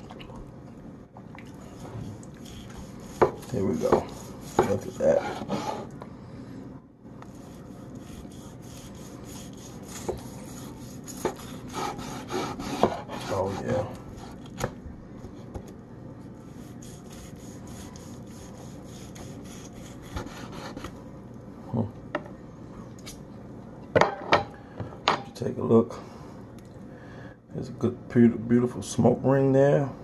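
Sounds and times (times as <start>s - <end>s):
knife sawing through roast: 1.6s - 5.9s, 7.3s - 14.6s, 16.4s - 20.9s.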